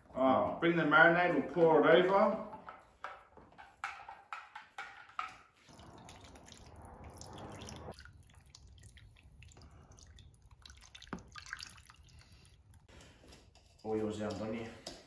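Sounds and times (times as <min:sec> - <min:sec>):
liquid pouring and dripping: 0:05.6 - 0:12.9.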